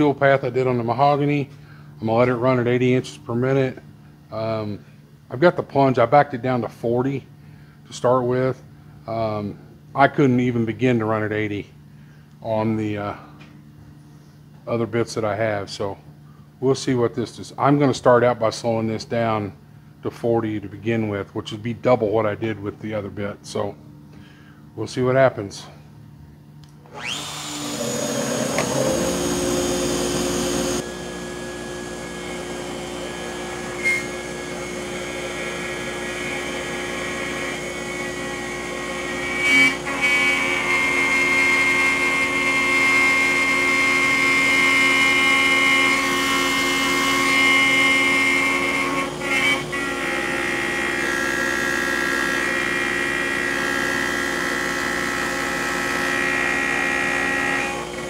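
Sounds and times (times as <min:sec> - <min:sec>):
router whining while cutting wood: 0:26.9 - 0:58.0.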